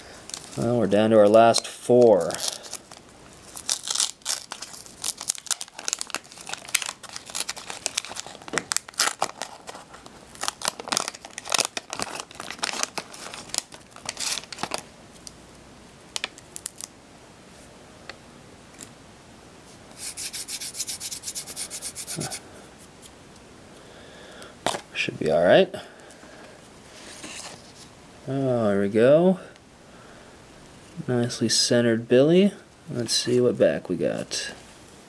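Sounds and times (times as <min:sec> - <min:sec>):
paper wrapper tearing and crinkling: 0:01.3 - 0:14.9, 0:16.2 - 0:16.9.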